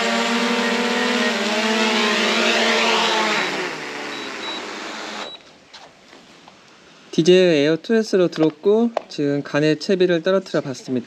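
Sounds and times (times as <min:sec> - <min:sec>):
drone propellers whining: 0:00.0 - 0:05.3.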